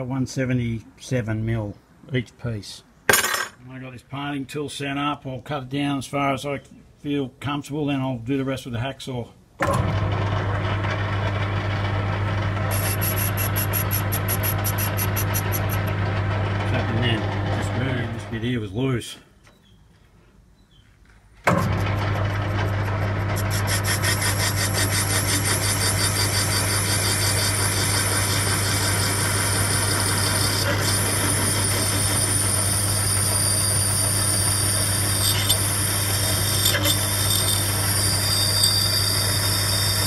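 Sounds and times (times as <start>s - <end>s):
metal lathe humming and whining: 10.0s - 18.3s, 21.7s - 40.0s
parting tool cutting aluminium: 12.7s - 18.1s, 21.5s - 40.0s.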